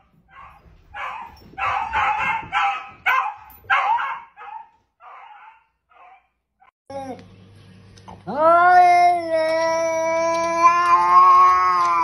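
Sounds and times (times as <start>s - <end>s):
dog barking: 0.0s - 6.4s.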